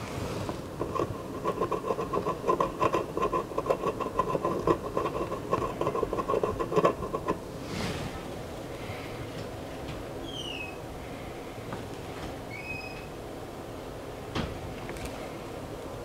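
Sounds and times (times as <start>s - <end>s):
soldering iron scratching circuit board: 0.6s - 7.4s.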